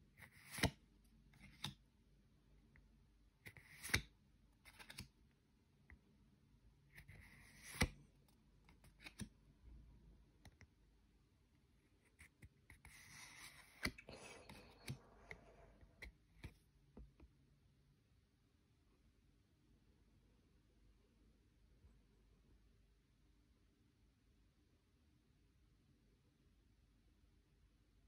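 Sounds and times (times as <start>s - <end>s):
cards rustling: 0.2s - 0.8s, 1.4s - 1.8s, 3.5s - 4.0s, 4.6s - 5.1s, 7.0s - 8.0s, 8.7s - 9.3s, 12.2s - 15.6s
cards swishing and clicking: 0.2s - 0.8s, 1.4s - 1.8s, 3.5s - 5.1s, 7.0s - 8.0s, 8.7s - 9.3s, 12.2s - 16.6s.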